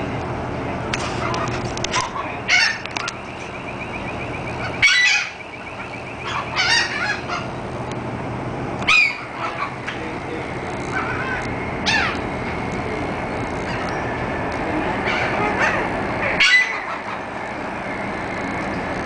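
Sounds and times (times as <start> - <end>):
steady low hum: 0.0 - 19.0
gulls calling harshly: 1.0 - 19.0
gull laughing calls: 4.5 - 7.6, 8.9 - 12.3, 13.0 - 17.4.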